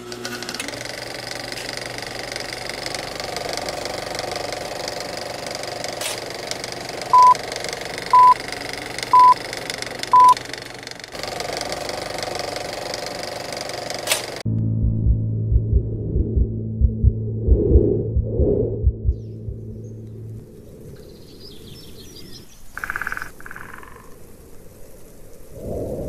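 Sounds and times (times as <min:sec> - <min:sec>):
movie projector clatter: 0:00.0 - 0:14.4
short high beeps: 0:07.2 - 0:07.4, 0:08.2 - 0:08.4, 0:09.2 - 0:09.4, 0:10.2 - 0:10.4.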